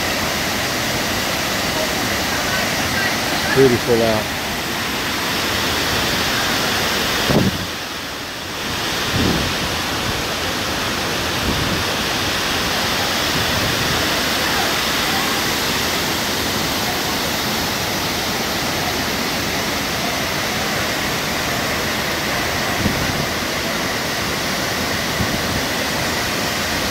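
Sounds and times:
waterfall rushing: 0.0s - 26.9s.

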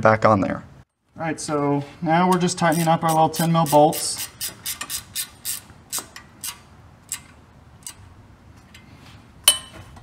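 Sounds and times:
ratchet wrench clicking: 2.3s - 8.0s.

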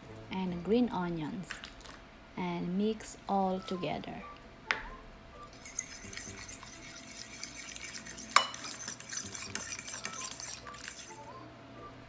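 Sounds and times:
fork clinking on bowl: 5.5s - 11.1s
fork whisking eggs in bowl: 5.5s - 11.3s.

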